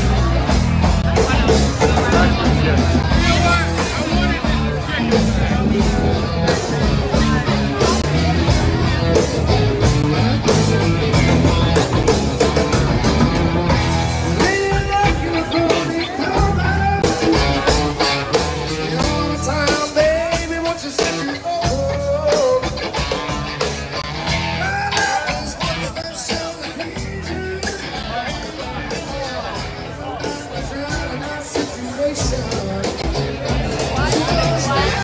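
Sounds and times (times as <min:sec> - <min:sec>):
drums: 0:00.0 - 0:35.0
electric guitar: 0:00.0 - 0:35.0
person singing: 0:14.3 - 0:23.1, 0:24.3 - 0:35.0.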